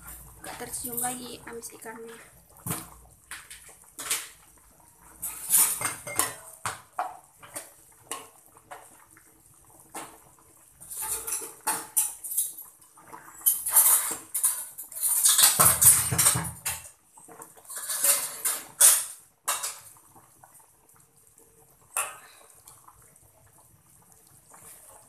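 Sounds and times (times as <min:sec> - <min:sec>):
metal spatula scraping cooking pot: 0:05.2 - 0:06.5, 0:10.8 - 0:12.6, 0:13.4 - 0:16.5, 0:17.6 - 0:19.8.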